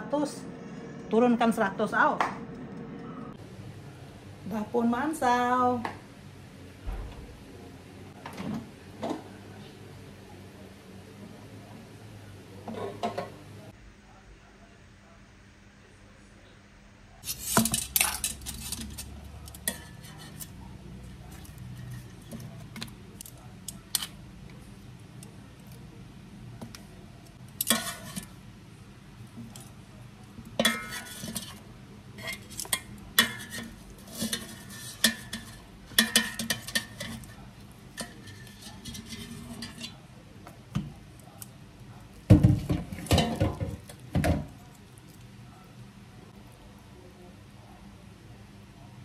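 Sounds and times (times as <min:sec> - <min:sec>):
metal tongs scraping basket: 0:17.2 - 0:20.5, 0:27.6 - 0:28.4, 0:30.6 - 0:31.6, 0:32.2 - 0:40.0.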